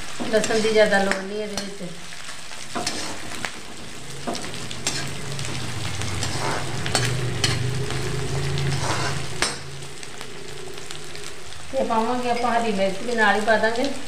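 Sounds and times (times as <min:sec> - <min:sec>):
onion sizzling in hot oil: 0:00.0 - 0:14.0
ladle scraping a pan: 0:02.6 - 0:09.6
low steady hum: 0:02.7 - 0:14.0.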